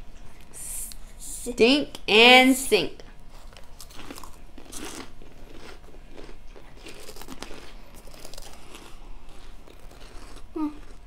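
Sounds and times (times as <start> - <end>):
people crunching cheese puffs: 3.3 - 11.0.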